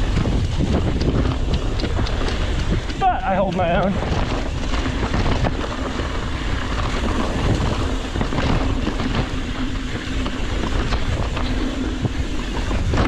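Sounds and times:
bike clicks and rattles: 0.0s - 13.0s
bike tyres crunching over gravel: 0.0s - 13.0s
wind buffeting microphone: 0.0s - 13.0s.

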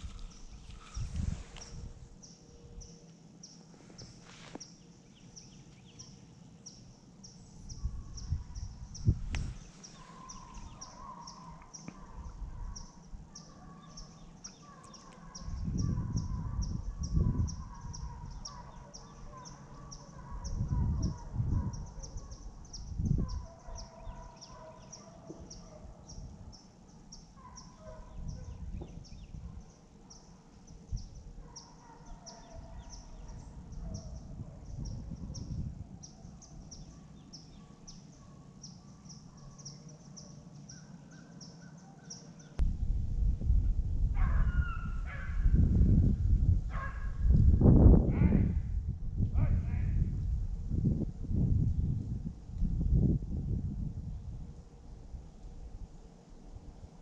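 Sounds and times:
distant animal calls: 9.4s - 28.6s, 44.2s - 45.5s
low rumbles: 42.6s - 54.4s.

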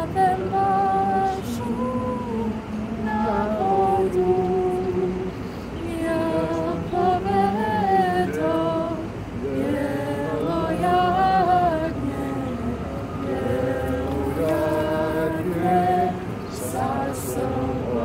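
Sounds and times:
woman singing unaccompanied: 0.0s - 18.0s
singer breathing: 5.3s - 5.8s.

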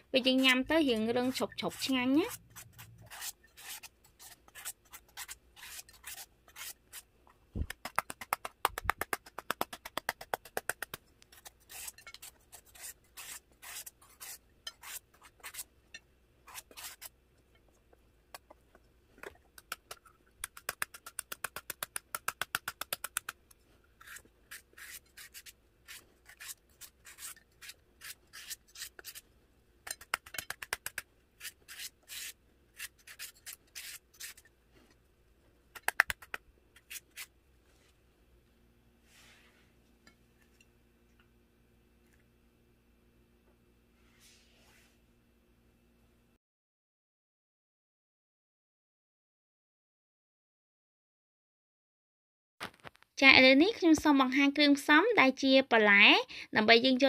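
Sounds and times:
papaya scraping strokes: 0.2s - 7.1s, 7.7s - 15.7s, 16.4s - 17.1s, 24.0s - 29.3s, 29.9s - 34.5s, 35.8s - 37.9s.

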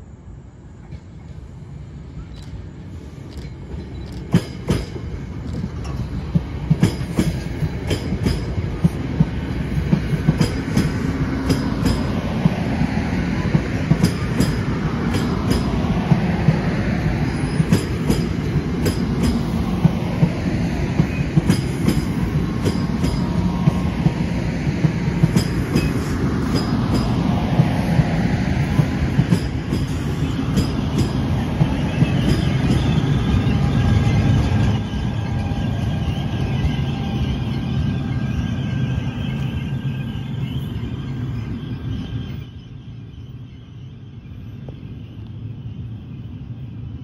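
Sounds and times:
electric locomotive whine: 0.0s - 47.0s
train wheels rumbling on rail: 0.3s - 47.0s
clickety-clack over rail joints: 0.8s - 1.4s, 3.2s - 37.3s.

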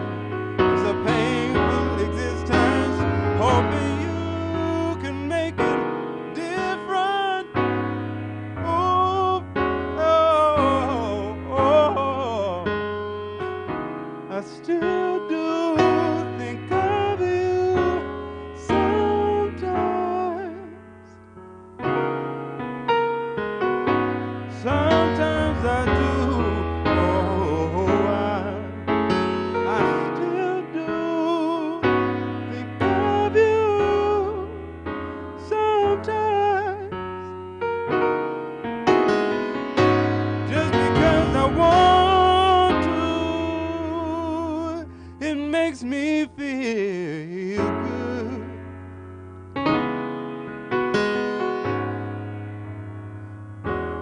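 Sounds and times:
man singing soul ballad: 0.0s - 8.0s, 8.6s - 13.1s, 14.2s - 21.2s, 24.5s - 34.6s, 35.4s - 37.3s, 40.4s - 48.7s
electric piano chords: 0.0s - 54.0s.

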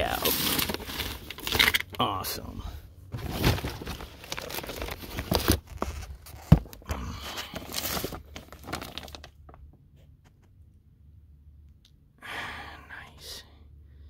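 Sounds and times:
cardboard boxes rustling and scraping: 0.0s - 1.8s, 3.1s - 9.1s.

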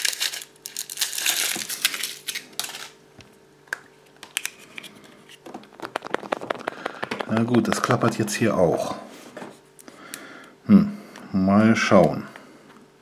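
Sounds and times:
foil wrapper crinkling: 0.0s - 3.0s, 5.4s - 8.4s
chocolate shell snapping: 5.7s - 8.2s.

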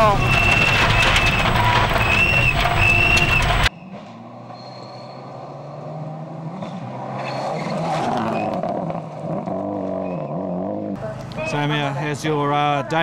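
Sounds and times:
in-cabin engine noise: 0.0s - 3.7s
rally car engine on gravel: 0.0s - 4.3s.

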